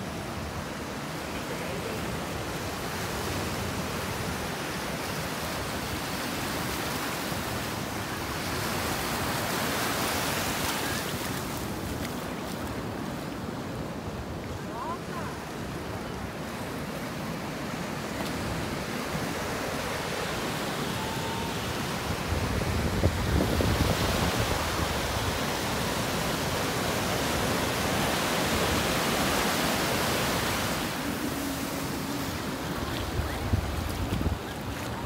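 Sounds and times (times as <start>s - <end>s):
ocean surf breaking: 0.0s - 35.0s
wind buffeting microphone: 22.0s - 25.4s, 30.9s - 35.0s.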